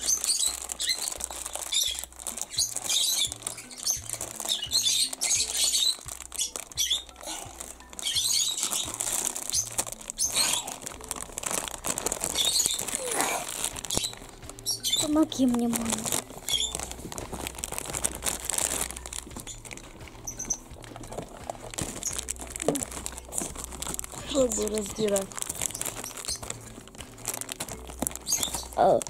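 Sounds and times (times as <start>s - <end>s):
background music with low beat: 0.0s - 29.0s
plastic bag crinkling and tearing: 0.0s - 29.0s.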